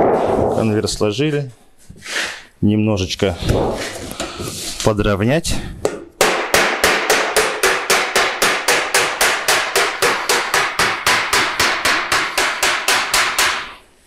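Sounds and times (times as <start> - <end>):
hammer tapping on sheet steel: 5.9 - 13.8.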